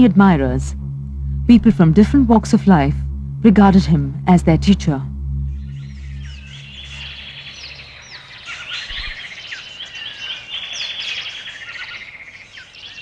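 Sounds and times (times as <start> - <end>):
low music drone: 0.0 - 9.5
birds chirping and trilling: 5.3 - 13.0.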